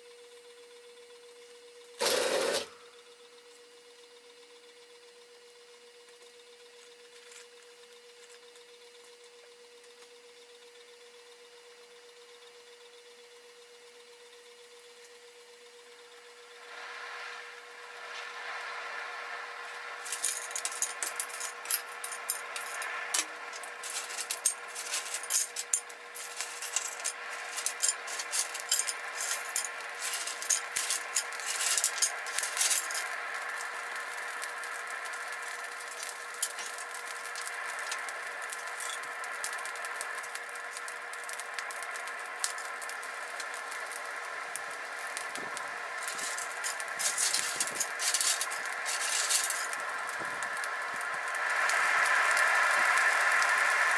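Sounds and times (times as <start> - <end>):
fire crackling and popping: 2.0 - 2.8, 16.1 - 53.9
steady hum: 12.3 - 53.9.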